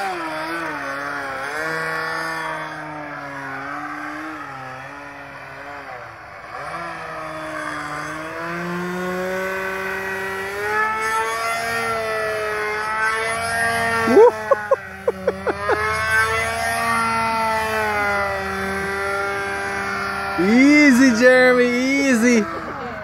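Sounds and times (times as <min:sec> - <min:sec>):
model plane engine running: 0:00.0 - 0:23.0
sharp throttle blips: 0:13.3 - 0:20.3.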